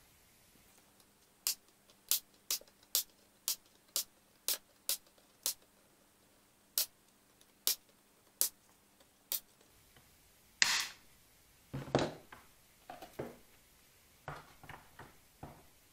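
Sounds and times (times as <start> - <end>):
faint steady hum: 0.0 - 15.9
sharp clicks: 1.0 - 5.7.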